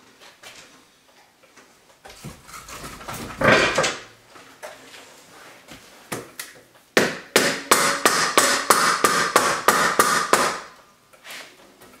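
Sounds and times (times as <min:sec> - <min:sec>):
hammer striking wood block: 0:07.0 - 0:10.8.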